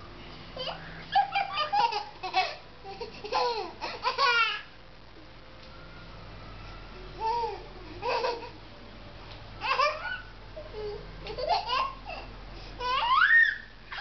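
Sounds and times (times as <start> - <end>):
young child laughing: 0.6 - 4.7.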